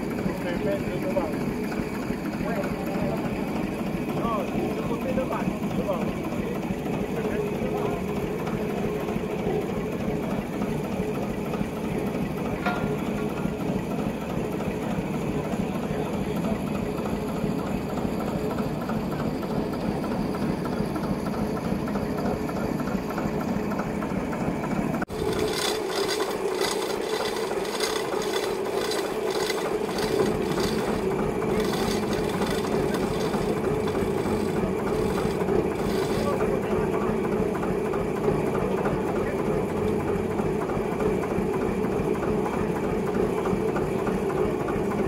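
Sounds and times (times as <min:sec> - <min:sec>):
regular mechanism clacking: 0:25.1 - 0:36.4
mechanical saw clattering: 0:25.1 - 0:36.5.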